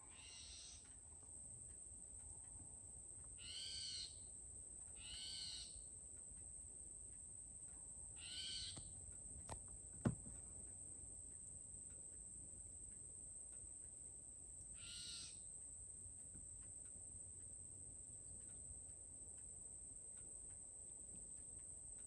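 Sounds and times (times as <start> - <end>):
owl calling: 0.0 - 0.8, 3.4 - 4.2, 5.0 - 5.8, 8.2 - 8.8, 14.8 - 15.4.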